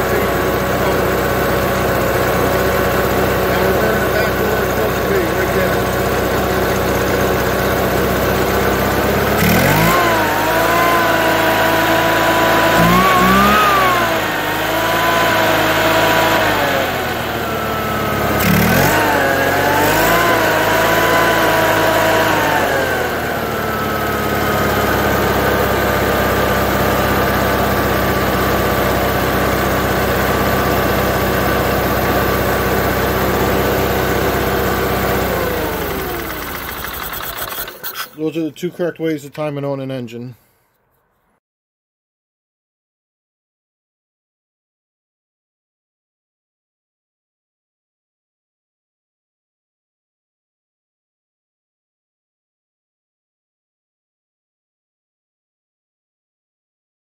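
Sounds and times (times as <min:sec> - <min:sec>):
small engine running: 0:00.0 - 0:38.2.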